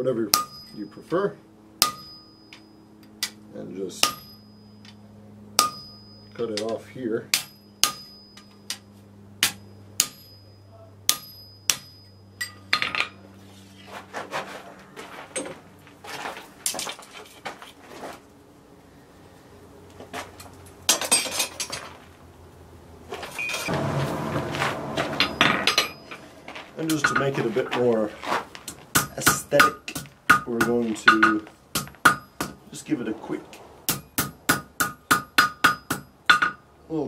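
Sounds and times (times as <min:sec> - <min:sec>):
hammer striking chisel on steel: 0:00.3 - 0:01.0, 0:01.8 - 0:03.4, 0:04.0 - 0:05.0, 0:05.6 - 0:12.6, 0:23.6 - 0:26.3, 0:28.9 - 0:32.6, 0:33.9 - 0:36.6
metal clatter and scraping: 0:12.7 - 0:18.2, 0:20.1 - 0:22.1, 0:23.1 - 0:29.0.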